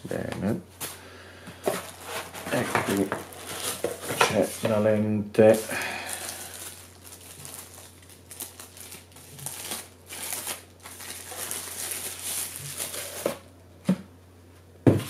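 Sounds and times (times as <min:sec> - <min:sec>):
protective bag rustling: 0:01.7 - 0:04.6.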